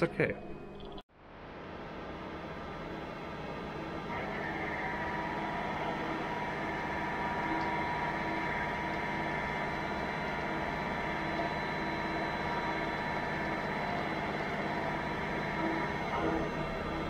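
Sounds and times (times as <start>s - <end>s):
milling machine cutting metal: 3.8s - 17.0s.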